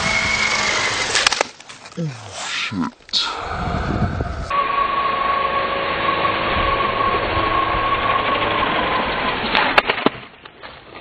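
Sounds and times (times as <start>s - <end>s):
model helicopter engine whine: 0.0s - 1.1s, 4.5s - 9.5s.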